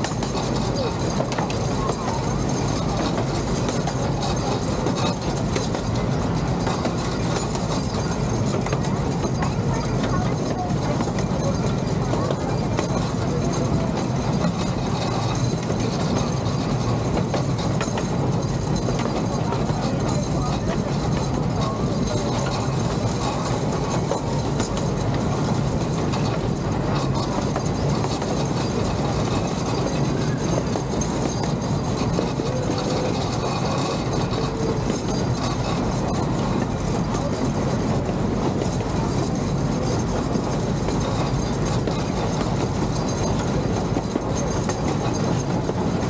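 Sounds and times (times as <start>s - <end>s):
miniature train wheels rumbling on rail: 0.0s - 46.0s.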